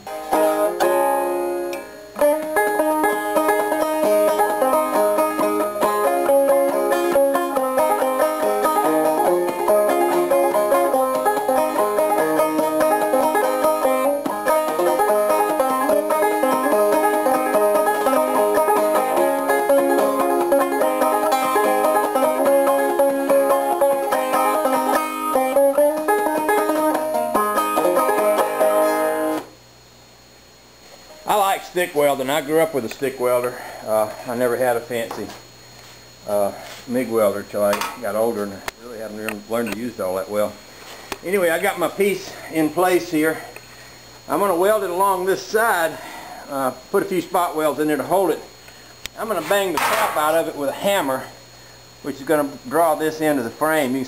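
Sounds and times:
banjo instrumental music: 0.0 - 29.5.

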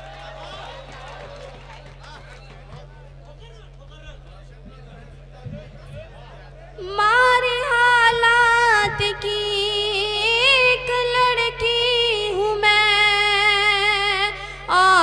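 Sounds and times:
woman singing into microphone: 6.8 - 15.0.

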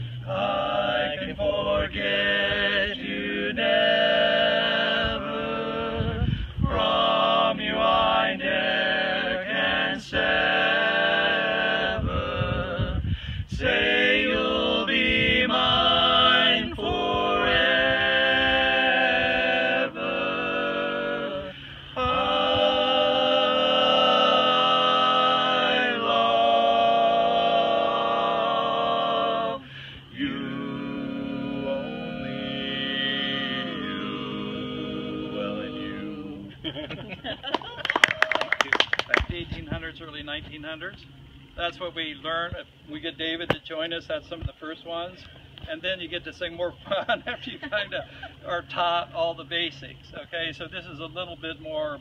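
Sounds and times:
men singing in harmony: 0.2 - 36.5.

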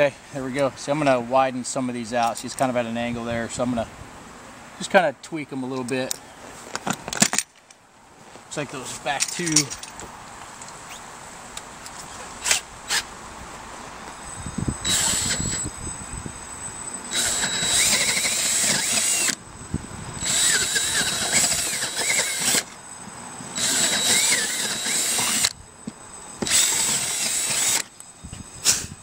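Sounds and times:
cordless drill motor whine: 13.8 - 29.0
drill bit cutting fiberglass: 14.8 - 15.7, 17.1 - 19.4, 20.2 - 22.8, 23.5 - 25.6, 26.4 - 28.0.

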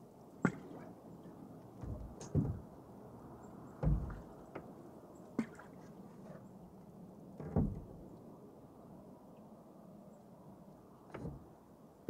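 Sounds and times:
faint wash of water: 0.4 - 8.4
light knocks: 1.8 - 2.7, 3.8 - 4.7
canoe paddle thud in water: 3.8 - 4.7.

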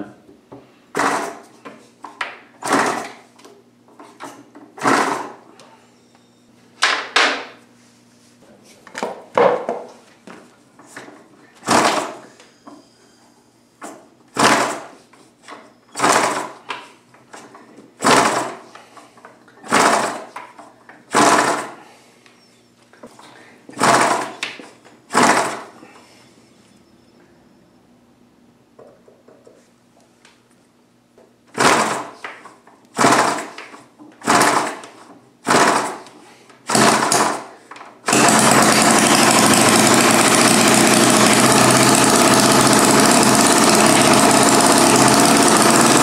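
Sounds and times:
model engine flip bursts: 16.0 - 16.6, 32.9 - 33.6, 36.7 - 46.0.

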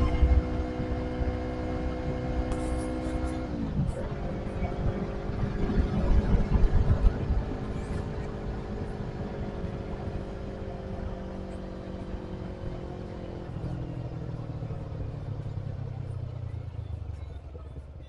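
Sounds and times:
wind buffeting microphone: 0.0 - 10.9
motorcycle engine running: 0.0 - 18.0.

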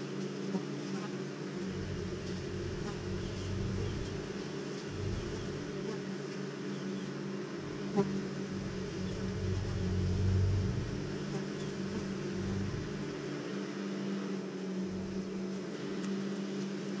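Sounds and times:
honeybees buzzing: 0.0 - 17.0.

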